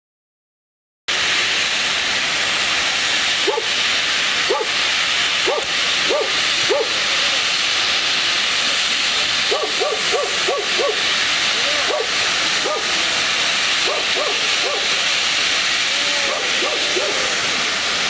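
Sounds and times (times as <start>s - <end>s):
gas hissing from pipe: 1.1s - 18.0s
dog barking: 3.4s - 3.7s, 4.5s - 4.7s, 5.4s - 7.0s, 9.5s - 11.0s, 11.8s - 12.9s, 13.8s - 14.9s, 16.3s - 17.3s.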